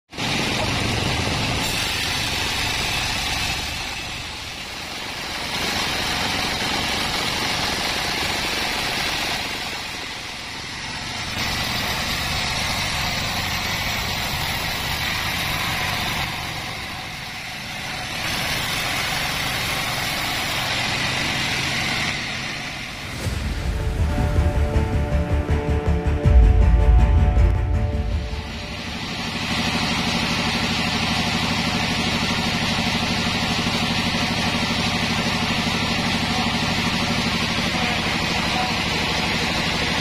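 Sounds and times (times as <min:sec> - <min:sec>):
band saw cutting wood: 0:00.2 - 0:26.3.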